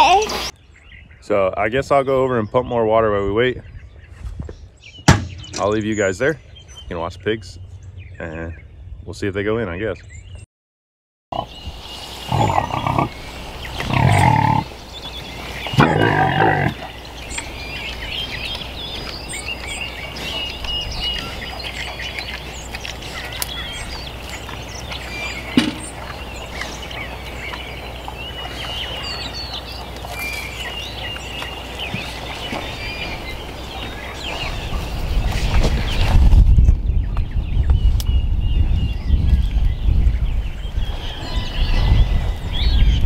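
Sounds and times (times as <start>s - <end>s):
songbirds chirping: 0.0s - 10.5s, 11.3s - 43.0s
pigs calling out loudly: 12.3s - 13.2s, 13.8s - 14.8s, 15.7s - 17.0s.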